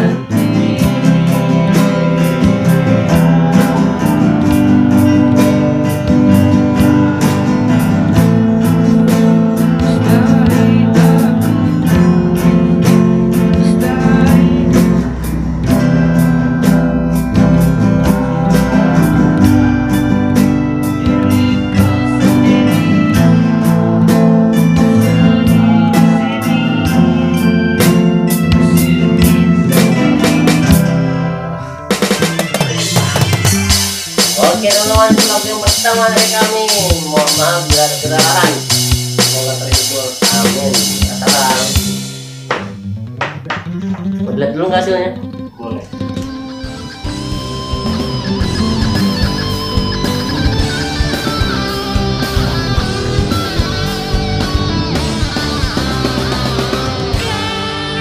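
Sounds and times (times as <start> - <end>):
man singing: 0.0 - 23.8, 24.5 - 42.8, 57.1 - 58.0
electronic drum beat: 0.0 - 31.2, 31.9 - 44.2, 45.3 - 57.6
strummed acoustic guitar: 0.0 - 58.0.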